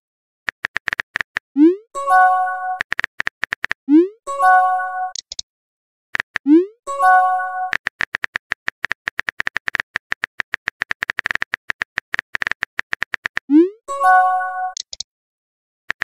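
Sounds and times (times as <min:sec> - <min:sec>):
phone keyboard typing taps: 0:00.5 - 0:01.4, 0:02.8 - 0:03.8, 0:07.7 - 0:13.5, 0:14.7 - 0:15.0.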